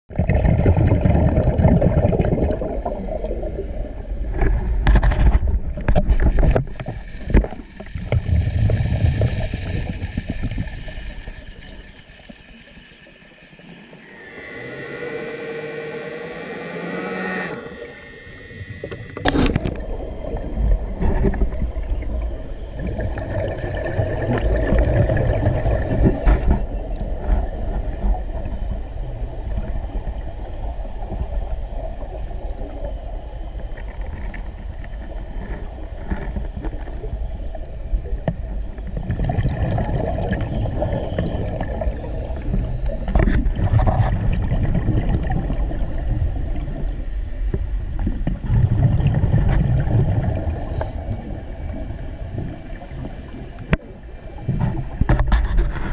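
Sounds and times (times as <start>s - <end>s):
muffled underwater rumble and gurgling: 0.1s - 55.9s
brief gliding tone: 14.0s - 19.8s
diver breathing through regulator: 41.3s - 43.5s, 45.5s - 48.5s, 50.2s - 51.6s, 52.5s - 53.8s.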